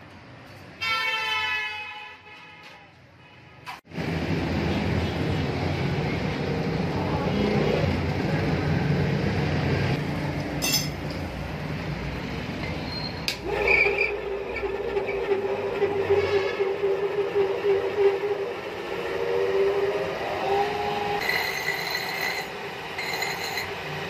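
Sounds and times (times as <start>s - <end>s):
sharp metallic clinks: 10.6s - 11.0s.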